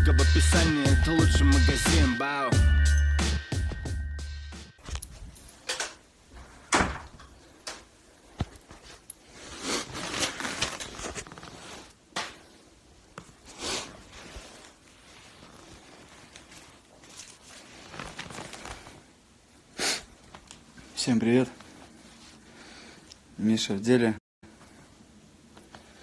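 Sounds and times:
music jingle: 0.0 - 4.8.

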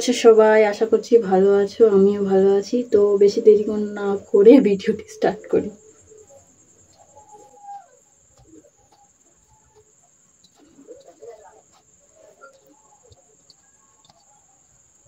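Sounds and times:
steady high-pitched whine: 0.0 - 15.0
chickens clucking: 5.4 - 15.0.

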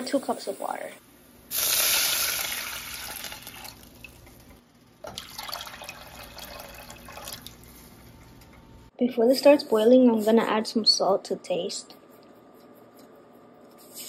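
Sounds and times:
water poured into hot oil: 1.5 - 4.2, 5.0 - 7.6.

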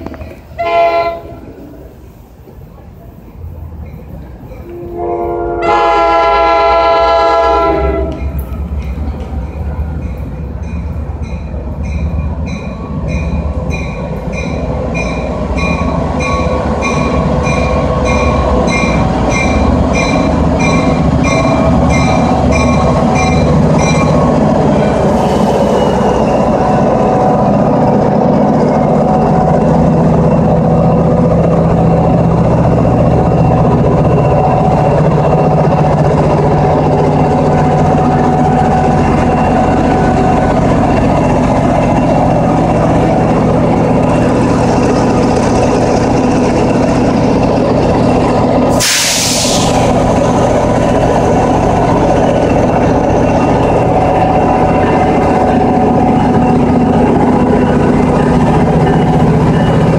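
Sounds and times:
locomotive engine and wheels rumbling: 0.0 - 59.9
locomotive horn blast: 0.6 - 1.6, 4.7 - 8.2.

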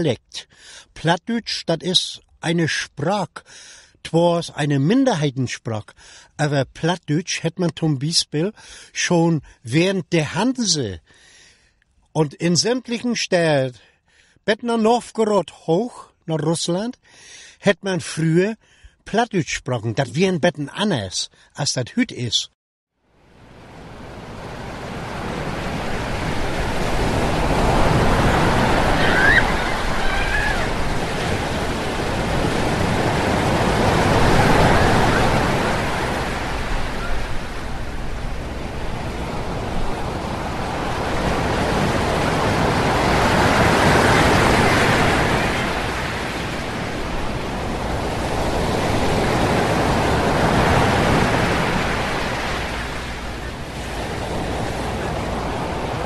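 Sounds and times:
sea waves washing in: 23.1 - 56.0.

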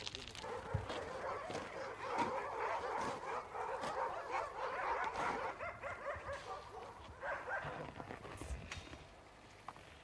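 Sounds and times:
dogs high-pitched calls: 0.4 - 7.8.

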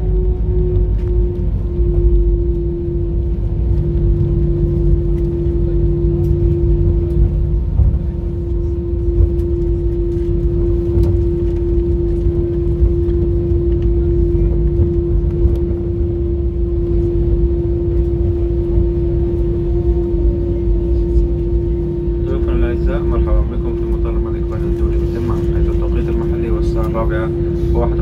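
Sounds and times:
jet engine hum: 0.0 - 28.0.

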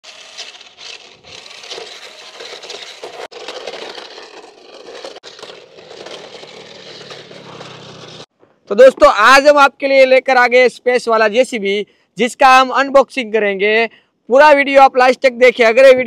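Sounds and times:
plastic wheels rattling over grit: 0.0 - 8.3
toy truck electric motor whirring: 0.0 - 8.3.

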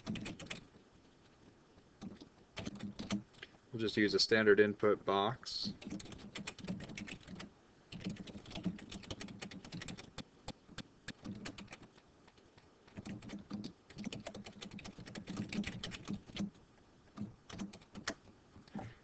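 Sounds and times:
computer keyboard typing: 0.0 - 0.6, 2.0 - 3.2, 5.7 - 16.5, 17.2 - 18.2.

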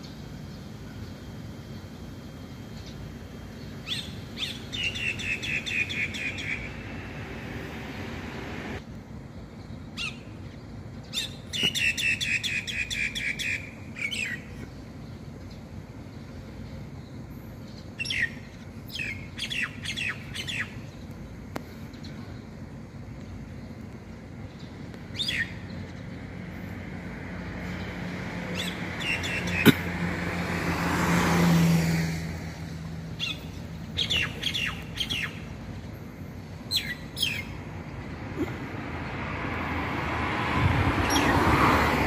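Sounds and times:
starling calling: 3.6 - 8.8, 17.9 - 21.0, 25.1 - 26.2, 28.4 - 30.0, 33.1 - 35.7, 36.5 - 38.7.

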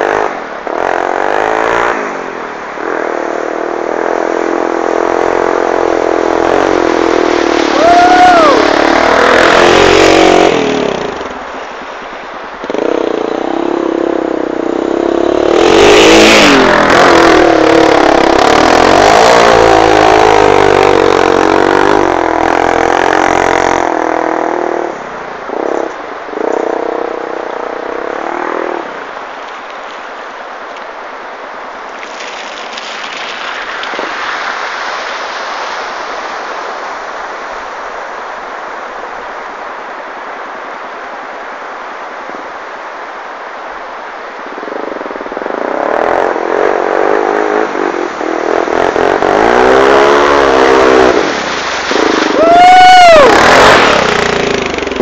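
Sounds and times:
quad engine revving: 0.0 - 2.1, 2.8 - 11.3, 12.7 - 24.9, 45.4 - 52.6, 53.2 - 55.0.

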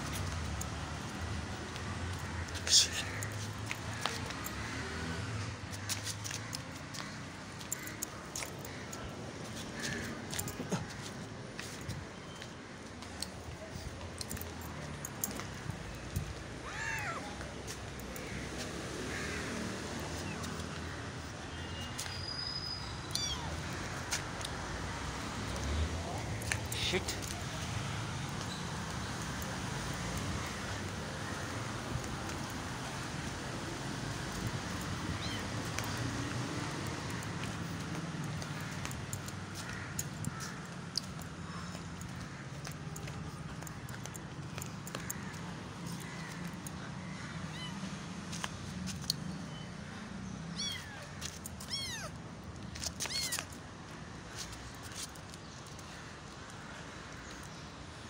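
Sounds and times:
kitten meowing: 16.6 - 17.4, 23.0 - 23.6, 35.0 - 35.7, 47.5 - 47.9, 50.5 - 52.2, 53.0 - 53.5.

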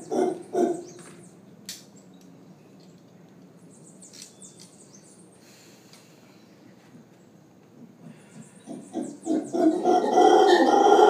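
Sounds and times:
howler monkeys howling: 0.0 - 1.1, 8.5 - 11.0.

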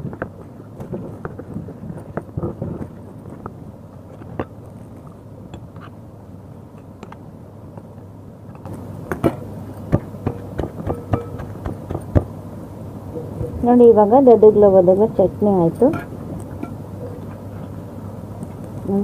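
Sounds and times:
stone pestle pounding in mortar: 9.2 - 12.3.

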